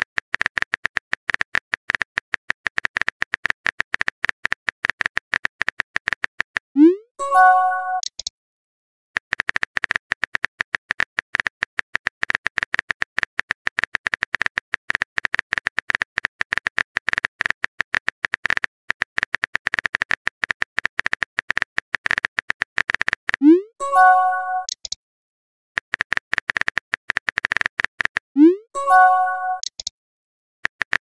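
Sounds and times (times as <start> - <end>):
phone keyboard typing clicks: 7.9 - 8.3, 24.0 - 25.0, 28.9 - 29.9.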